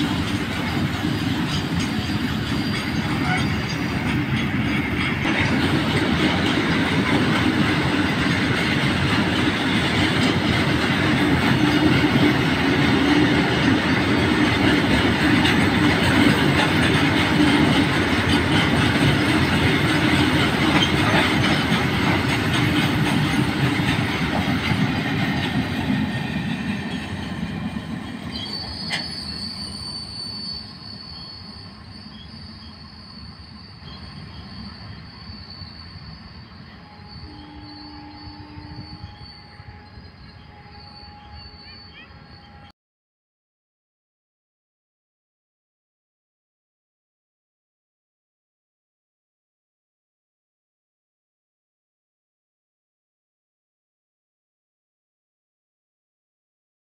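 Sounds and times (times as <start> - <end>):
freight train rumbling past: 0.0 - 42.7.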